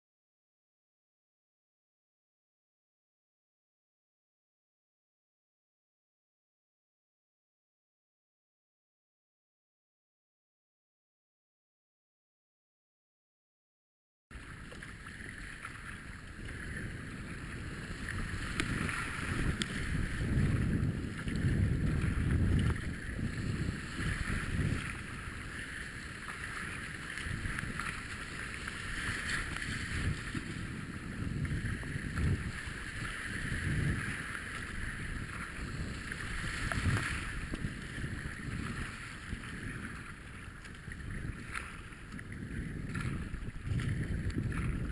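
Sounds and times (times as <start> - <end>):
paddle splashing in water: 14.3 - 44.9
wind buffeting microphone: 14.4 - 44.9.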